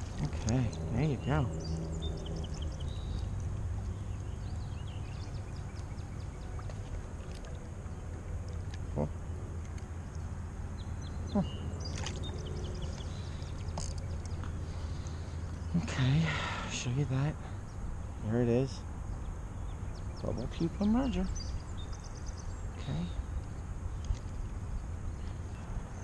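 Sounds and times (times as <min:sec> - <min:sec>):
stream water flowing: 0:00.0 - 0:16.3.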